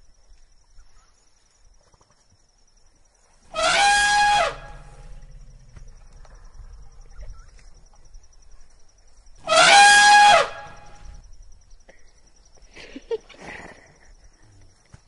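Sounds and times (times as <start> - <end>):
elephant trumpeting: 3.5 - 5.3, 9.4 - 11.1.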